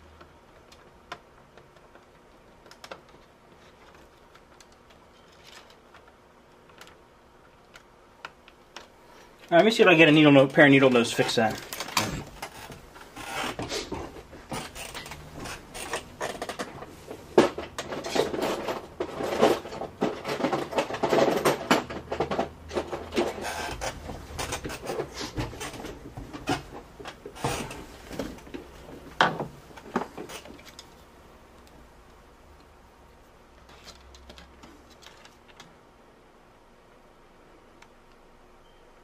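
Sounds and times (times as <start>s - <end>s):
hand tools rubbing and clattering: 9.2s - 30.9s.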